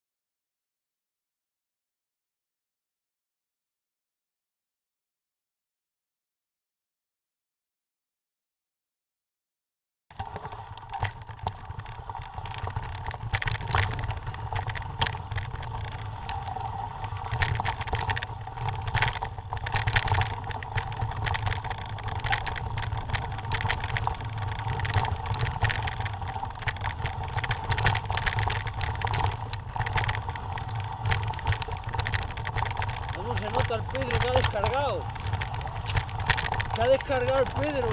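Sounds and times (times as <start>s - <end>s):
bike rattling: 10.1s - 37.9s
tyres crunching over stones: 10.2s - 37.9s.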